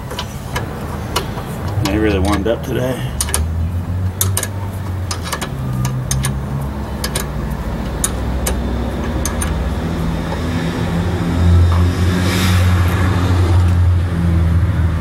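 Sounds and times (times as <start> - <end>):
wrench clicking on bolts: 0.0 - 10.5
low engine hum: 0.0 - 15.0.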